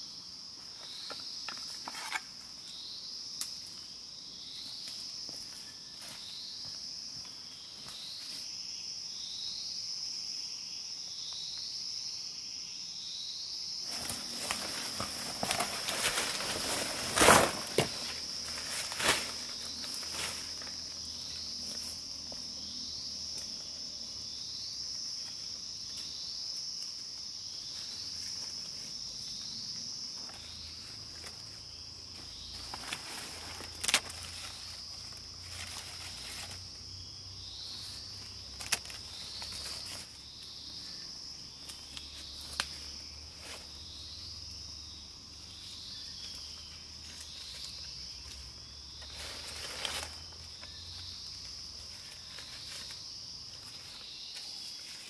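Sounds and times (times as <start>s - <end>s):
insects droning: 0.0s - 55.0s
sticks and plants handled: 0.8s - 2.3s, 13.9s - 22.4s, 30.2s - 31.6s, 32.2s - 36.8s, 37.7s - 41.0s, 41.6s - 43.8s, 45.6s - 55.0s.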